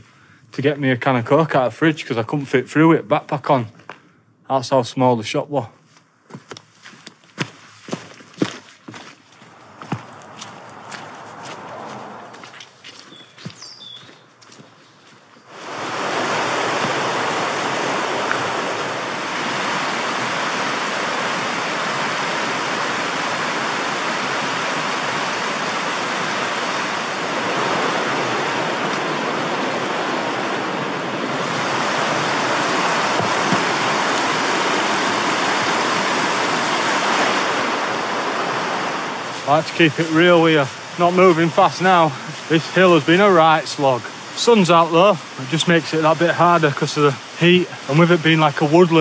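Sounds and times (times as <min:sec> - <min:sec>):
river rushing over rocks: 0:15.5 - 0:49.0.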